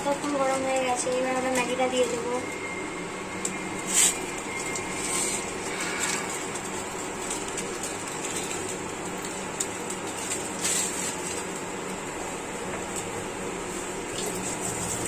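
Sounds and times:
cooktop hum and hiss: 0.0 - 15.0.

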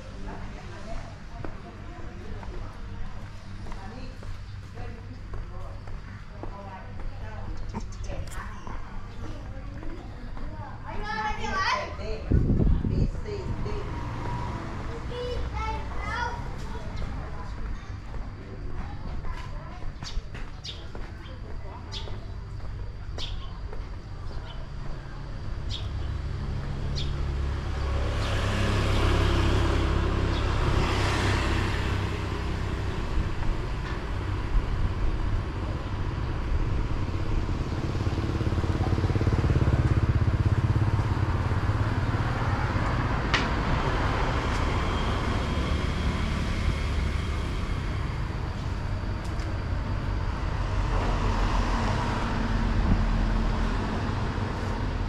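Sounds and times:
road traffic passing: 0.0 - 55.0.

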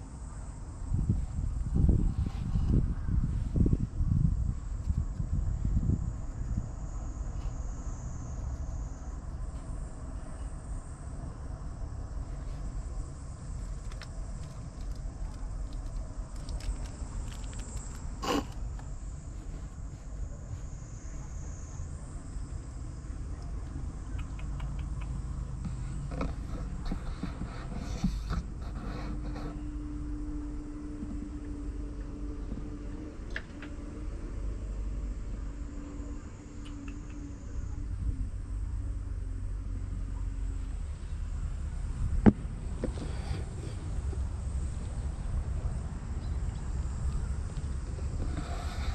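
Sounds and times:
wind buffeting microphone: 0.0 - 7.9, 41.1 - 48.9
faint steady hum: 0.0 - 48.9
high insect drone: 0.0 - 48.9
rustle against camera: 0.9 - 6.7, 12.2 - 21.1, 24.4 - 29.7, 42.0 - 48.9
kitten scratching and tapping: 13.4 - 18.9
light ticks: 23.4 - 26.3.

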